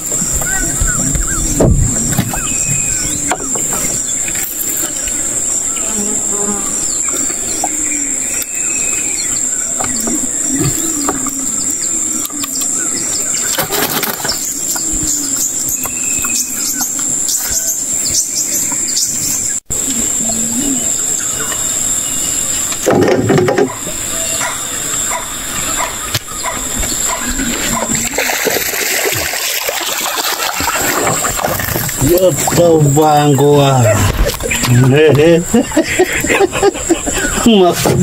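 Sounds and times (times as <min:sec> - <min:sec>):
bird chirps: 0:00.0 - 0:06.0, 0:06.8 - 0:22.8, 0:23.7 - 0:28.0
high-pitched insect drone: 0:00.0 - 0:37.8.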